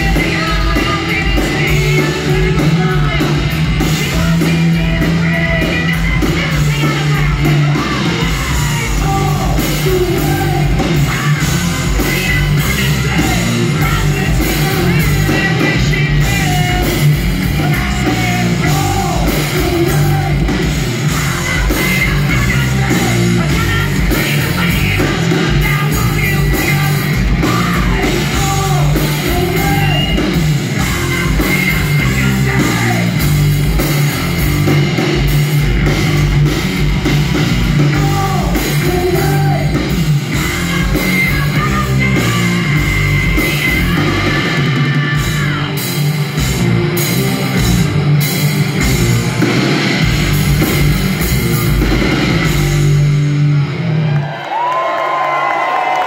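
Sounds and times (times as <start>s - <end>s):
person singing: 0.0s - 34.8s, 37.8s - 46.4s
live hard rock band: 0.0s - 56.0s.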